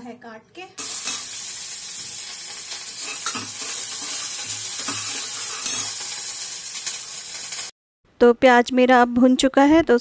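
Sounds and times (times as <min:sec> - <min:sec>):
onions sizzling in oil: 0:00.8 - 0:07.8.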